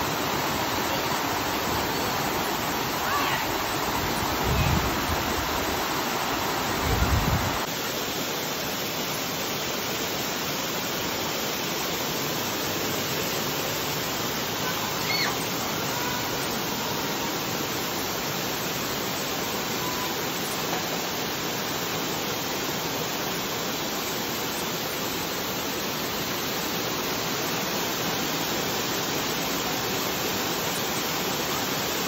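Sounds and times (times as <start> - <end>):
fountain water splashing into pool: 10.4 - 17.3.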